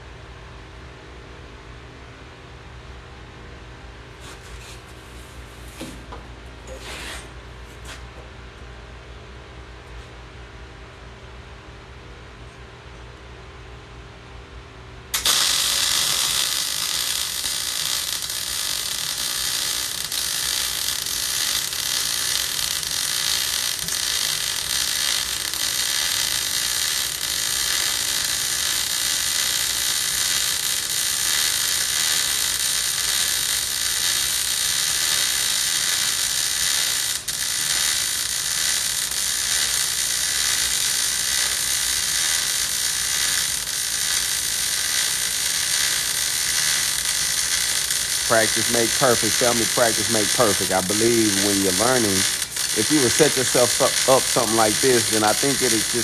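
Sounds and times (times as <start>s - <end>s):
welding arc crackling hiss: 15.1s - 56.0s.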